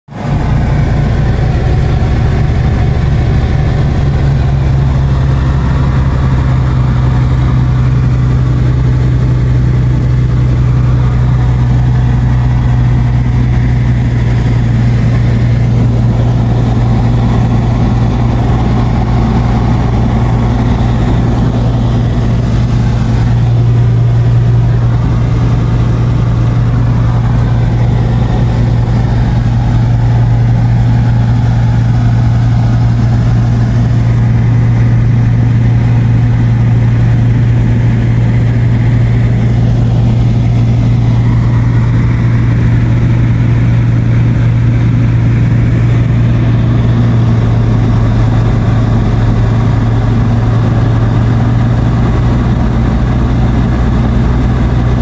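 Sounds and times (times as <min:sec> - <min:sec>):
light aircraft engine and propeller: 0:00.1 - 0:55.0.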